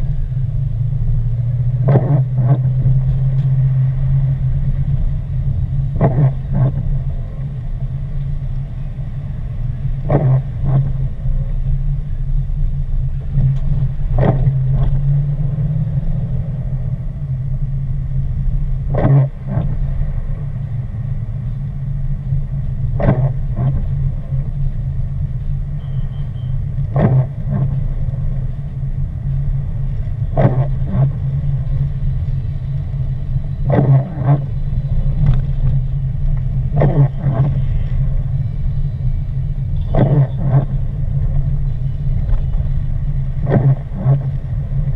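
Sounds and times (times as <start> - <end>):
car rumbling on wet road: 0.0 - 44.9
windshield wipers sweeping: 0.0 - 44.9.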